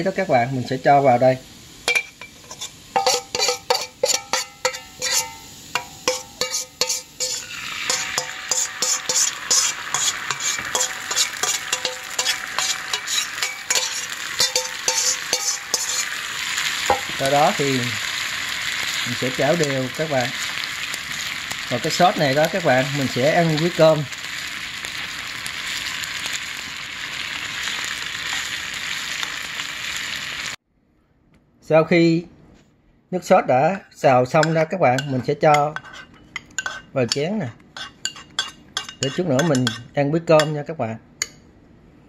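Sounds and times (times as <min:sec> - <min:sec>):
sauce sizzling in hot oil: 0:00.0 - 0:30.6, 0:35.8 - 0:39.9
utensils clinking on bowl and pan: 0:01.8 - 0:16.2, 0:34.3 - 0:40.6
spoon stirring: 0:01.9 - 0:17.1, 0:34.4 - 0:40.6.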